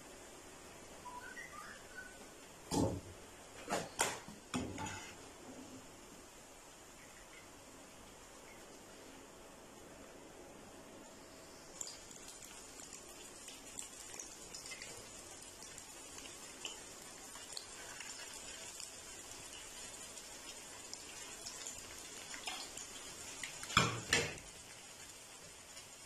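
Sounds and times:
patties sizzling in hot oil: 0:11.5 - 0:26.0.

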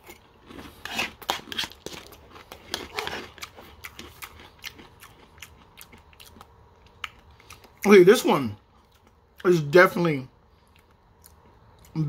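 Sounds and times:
crunchy chewing of cereal: 0:00.0 - 0:07.9.

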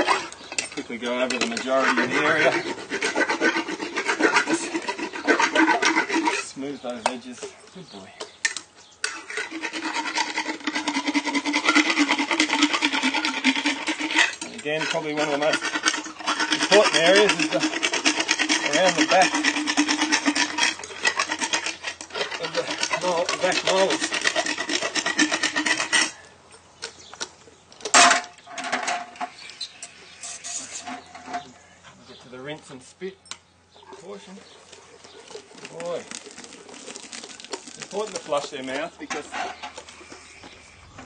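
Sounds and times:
dental float rasping on teeth: 0:01.4 - 0:06.6, 0:09.0 - 0:26.2, 0:34.4 - 0:38.6.

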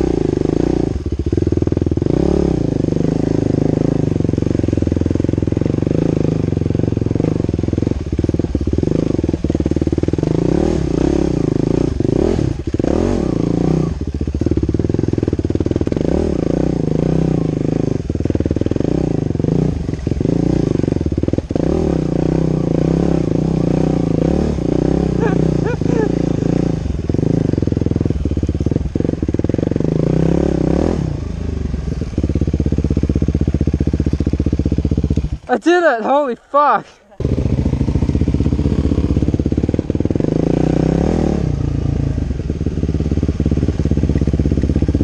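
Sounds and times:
dirt bike engine running: 0:00.0 - 0:45.0
knocks and clatter over bumps: 0:43.8 - 0:45.0.

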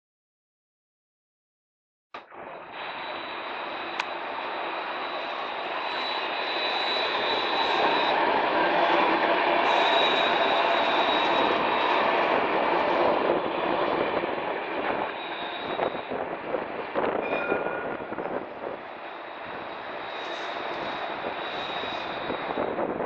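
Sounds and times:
tram passing: 0:02.4 - 0:23.0
wheels clicking on track: 0:02.6 - 0:23.0.

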